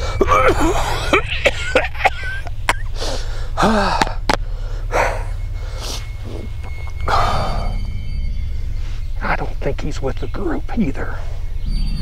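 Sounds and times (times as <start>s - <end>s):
man coughing harshly: 0.0s - 4.2s
low rumble: 0.0s - 12.0s
gasping breaths: 2.9s - 7.8s.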